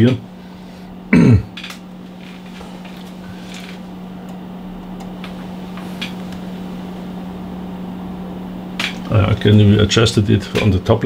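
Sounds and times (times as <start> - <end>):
equipment humming: 0.0 - 11.0.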